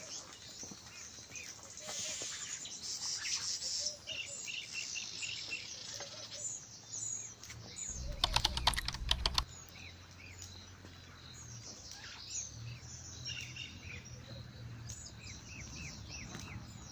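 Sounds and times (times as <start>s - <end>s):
small birds chirping: 0.0s - 16.9s
rapid sharp clicks: 7.9s - 9.5s.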